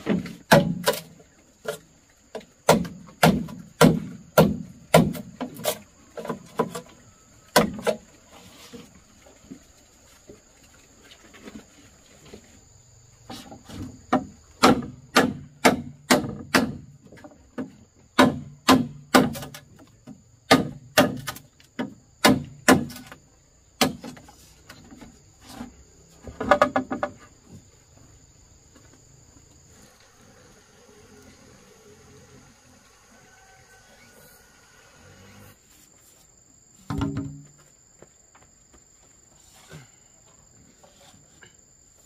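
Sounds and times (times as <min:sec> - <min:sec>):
insects buzzing: 0:00.0 - 0:42.0
sharp knocks: 0:14.1 - 0:19.6.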